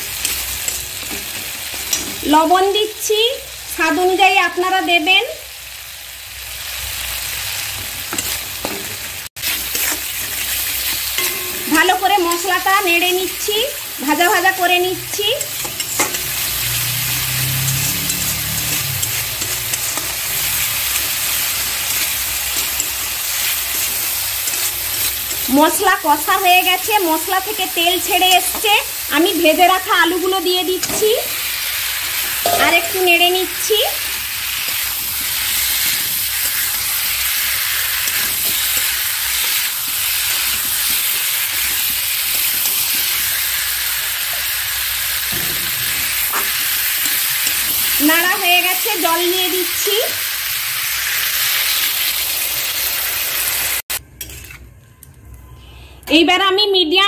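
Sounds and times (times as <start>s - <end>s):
spice paste sizzling in oil: 0.0s - 54.6s
metal spatula scraping pan: 8.1s - 11.8s, 15.3s - 25.5s, 54.2s - 54.8s.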